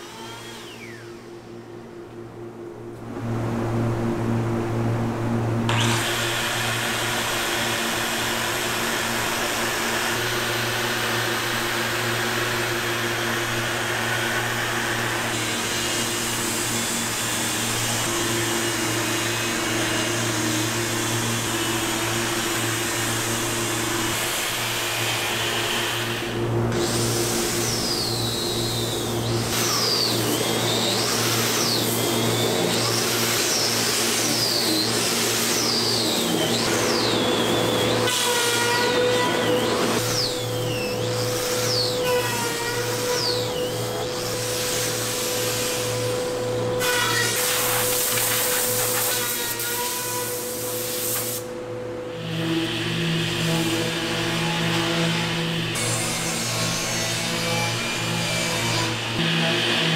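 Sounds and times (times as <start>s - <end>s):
high squeal of sanding disc: 27.4s - 46.0s, 46.8s - 50.9s.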